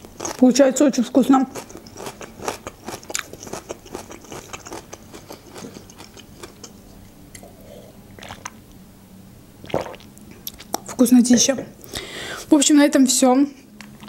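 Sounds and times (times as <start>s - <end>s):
mouth chewing sounds: 1.4s - 8.6s
water sipping: 7.4s - 8.6s, 9.6s - 10.7s.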